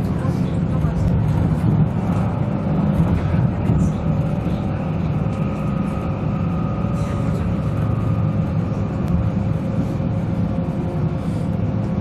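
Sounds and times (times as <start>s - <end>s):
train engine and wheels rumbling: 0.0s - 12.0s.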